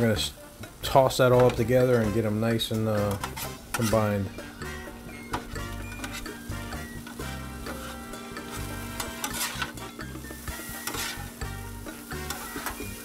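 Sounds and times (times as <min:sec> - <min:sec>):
metal spatulas scraping griddle: 0:02.2 - 0:13.0
meat and onions sizzling on griddle: 0:02.9 - 0:13.0
spatula blades clicking: 0:07.8 - 0:09.9, 0:10.8 - 0:11.2, 0:12.2 - 0:12.9.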